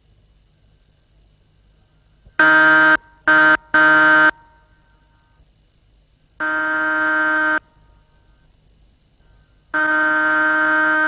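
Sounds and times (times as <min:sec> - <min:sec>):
car horn honking: 0:02.4 - 0:04.6, 0:06.4 - 0:07.7, 0:09.7 - 0:11.0.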